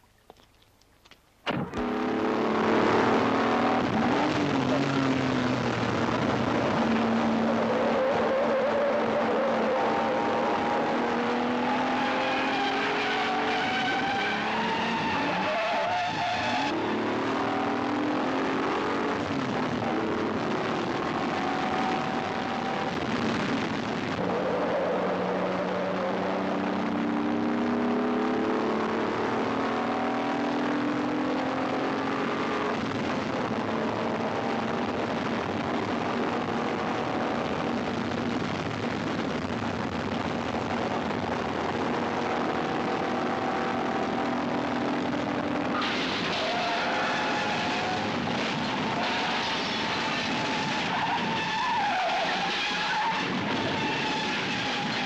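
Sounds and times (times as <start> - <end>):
sports car engine revving: 1.6 - 23.1, 24.2 - 37.8
tyre squeal: 11.9 - 16.8, 45.8 - 55.0.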